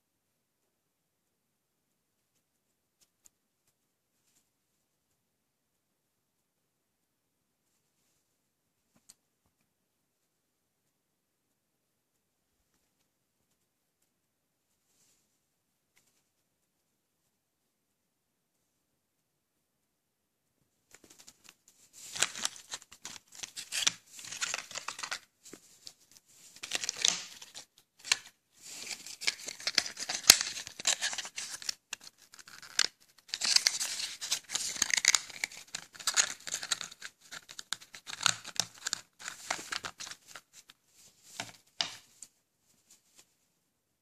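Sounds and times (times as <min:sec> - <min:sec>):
cardboard and paper rustling: 0:21.0 - 0:42.2
paper tearing: 0:26.6 - 0:40.4.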